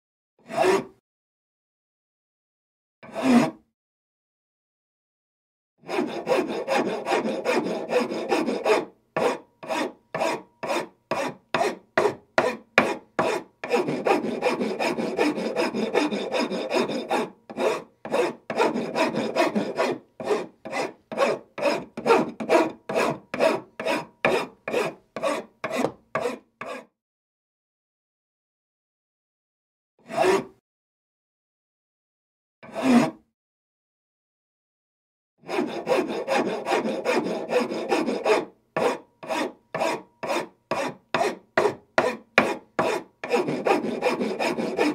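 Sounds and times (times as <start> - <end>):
wood file rasping on wood: 0.5 - 0.9, 3.1 - 3.6, 5.8 - 26.9, 30.1 - 30.5, 32.7 - 33.2, 35.4 - 44.9.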